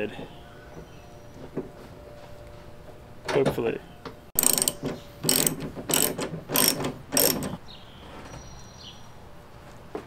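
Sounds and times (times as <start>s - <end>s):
ratchet wrench clicking: 4.4s - 7.6s.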